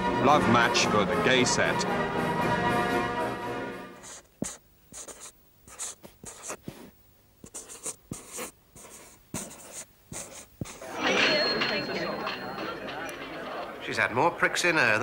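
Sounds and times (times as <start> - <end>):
writing strokes on a board: 4.0 - 10.9.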